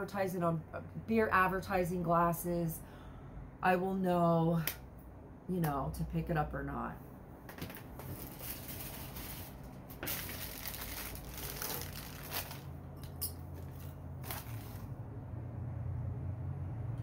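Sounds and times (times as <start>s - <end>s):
wrapping crinkling and rustling: 7.7s - 12.8s, 13.5s - 14.9s.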